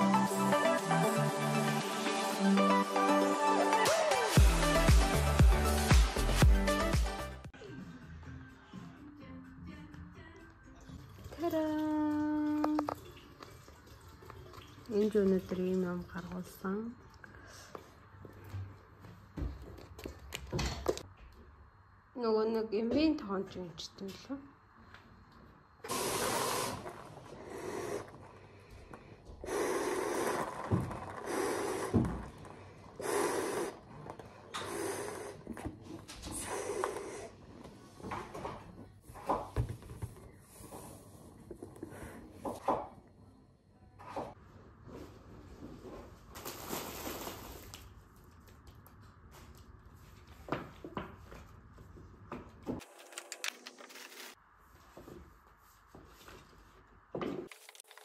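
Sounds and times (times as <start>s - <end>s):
balloon sputters: 25.9s - 28.1s, 29.4s - 32.4s
breaths blowing up balloon: 25.9s - 37.9s
plastic and paper bags rustling: 46.0s - 48.2s, 52.8s - 54.4s, 57.4s - 58.0s.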